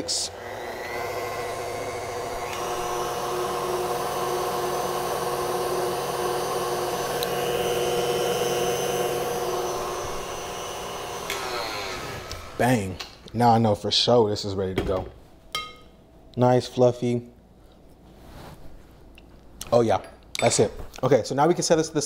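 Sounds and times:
stand mixer motor whine: 0.3 - 12.6.

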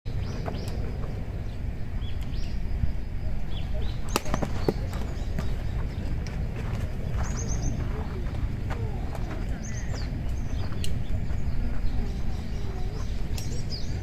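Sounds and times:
wind rumble on microphone: 0.1 - 14.0
bat hitting baseball clack: 4.1 - 4.6.

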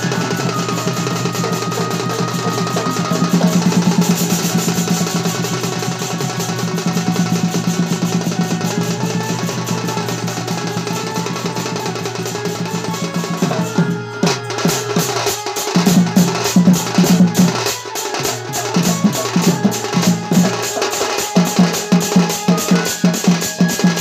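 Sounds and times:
barrel drum played by hand: 0.0 - 24.0.

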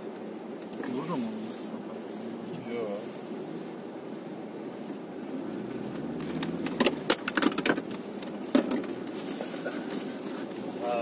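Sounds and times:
engine idling hum: 0.0 - 11.0
sharp clicks and knocks in car: 5.8 - 9.2.

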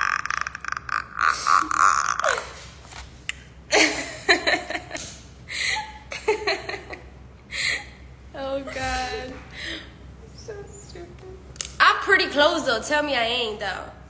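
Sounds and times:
woman laughing: 3.7 - 9.8.

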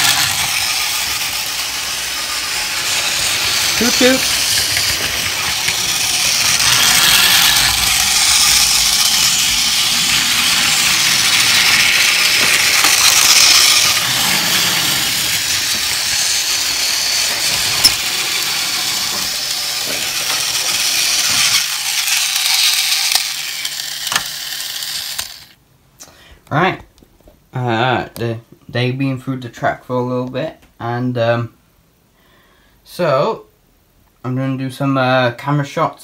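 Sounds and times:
toy train motor whirring: 0.0 - 25.6.

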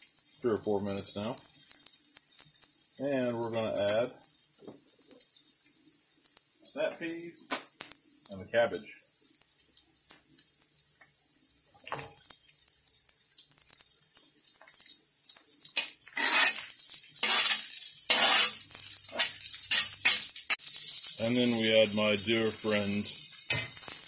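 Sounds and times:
vegetables sizzling in a pan: 0.0 - 24.0
spatula stirring and scraping: 15.8 - 20.8.

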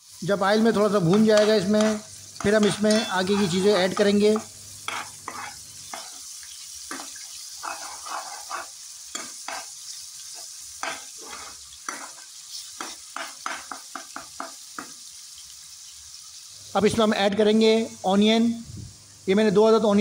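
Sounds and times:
meat sizzling in oil: 0.0 - 20.0
metal spatula scraping a pan: 0.9 - 14.9.

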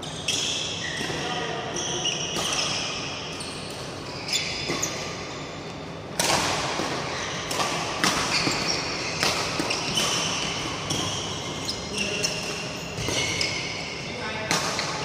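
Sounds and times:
shoes squeaking on court: 0.0 - 5.9, 6.8 - 14.1
racket striking shuttlecock: 6.2 - 11.1.

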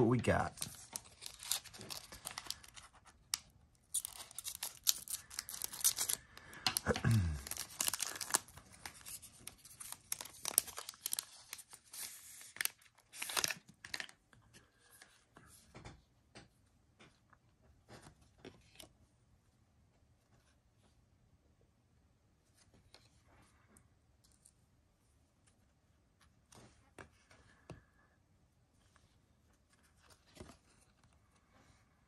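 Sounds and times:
cards rustling and clicking: 0.0 - 15.9, 28.9 - 31.3
foil wrapper tearing and crinkling: 0.5 - 14.1.

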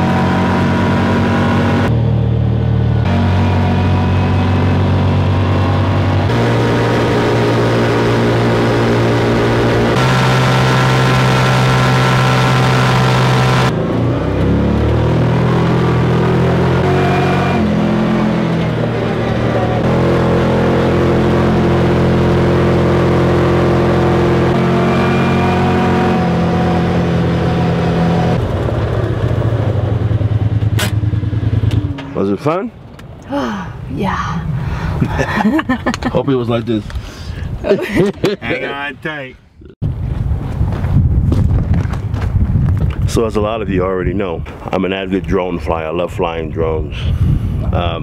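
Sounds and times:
vehicle engine running: 0.0 - 33.3.

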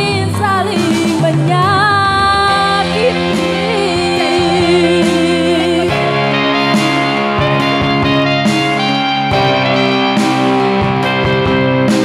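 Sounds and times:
person singing with vibrato: 0.0 - 7.8
electronic keyboard backing: 0.0 - 12.0.

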